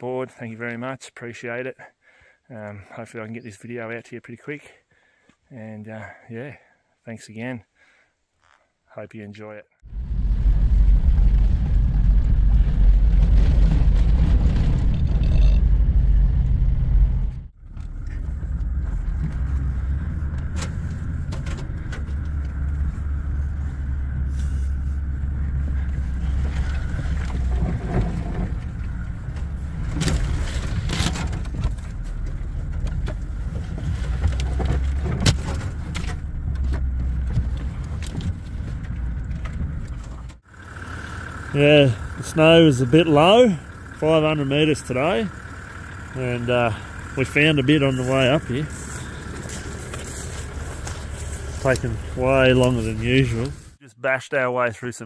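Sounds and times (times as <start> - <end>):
vehicle engine rumbling under load: 9.8 - 53.8
snow scraping and knocking on vehicle: 9.9 - 40.4, 46.0 - 53.8.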